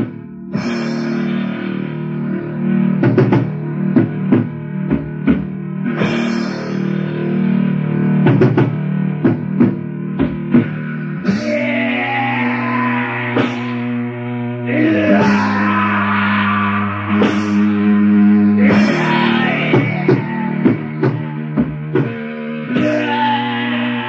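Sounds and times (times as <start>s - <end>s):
metal guitar chords: 0.0s - 24.0s
drum hits: 3.0s - 6.6s, 8.2s - 11.6s, 17.1s - 17.8s, 18.6s - 22.2s.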